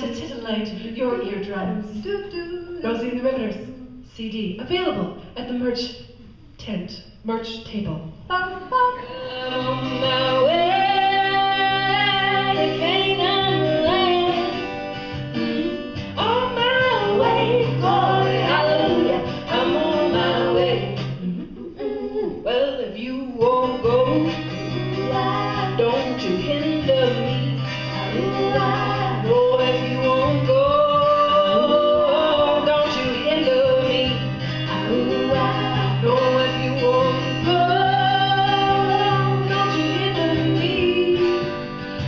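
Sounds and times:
women singing in close harmony: 8.7 - 14.7, 15.4 - 21.2, 21.8 - 41.5
strummed acoustic guitar: 8.9 - 21.6, 23.3 - 42.0.

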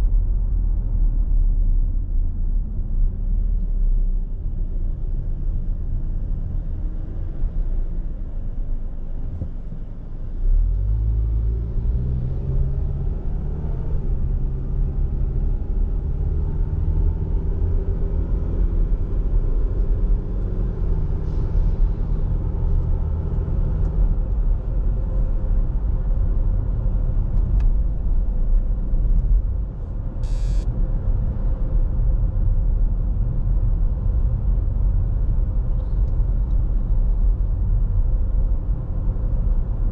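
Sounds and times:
car engine: 0.0 - 39.9.

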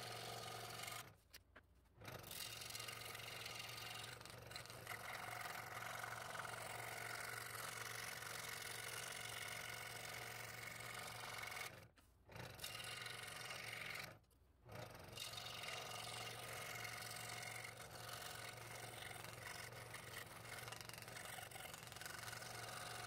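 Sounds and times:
scroll saw cutting wood: 0.0 - 1.5, 2.1 - 14.2, 14.8 - 23.0.

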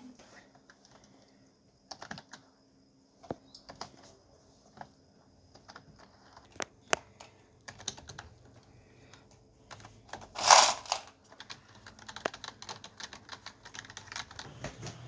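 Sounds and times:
keyboard keys clicking: 1.9 - 2.5, 5.5 - 14.5.

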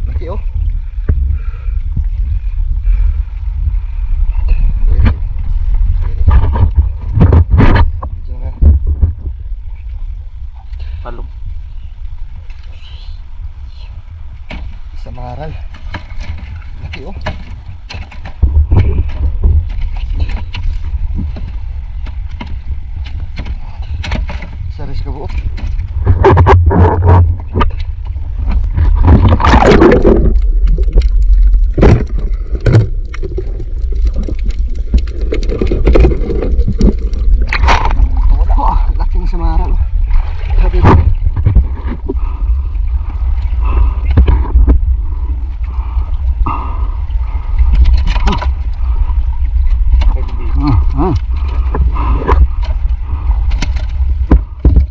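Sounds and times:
steady low rumble: 0.0 - 54.9
water sloshing: 14.2 - 54.9.

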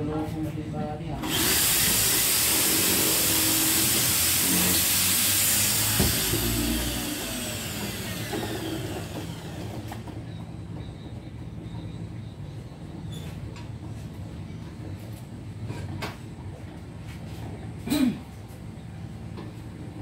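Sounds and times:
power tool motor running: 1.2 - 10.2.

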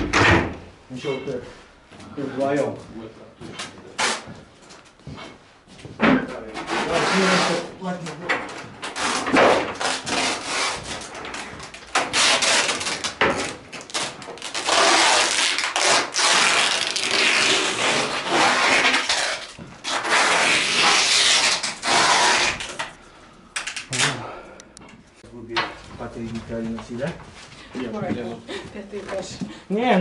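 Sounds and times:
knocks of panels: 0.0 - 0.7.

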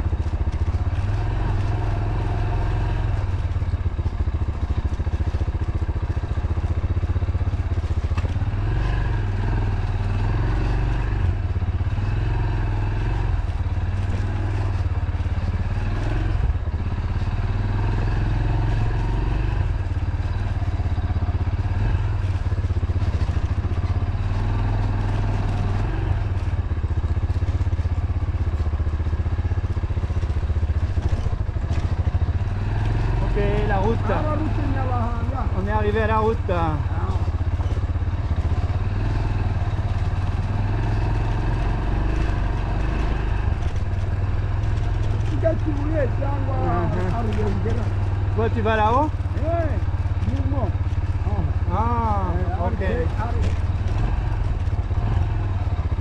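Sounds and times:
motorcycle engine running: 0.0 - 56.0
knocks from rough ground: 52.9 - 54.0.

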